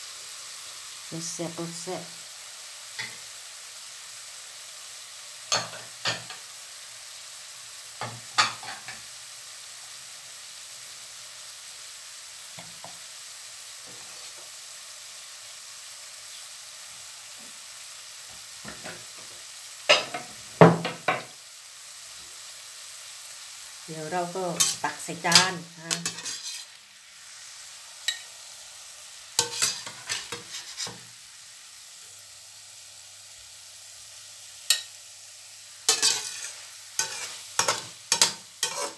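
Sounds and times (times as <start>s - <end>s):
faint sizzling hiss: 0.0s - 38.9s
metal spatula scraping a frying pan: 24.6s - 26.8s, 29.4s - 31.1s, 35.9s - 38.9s.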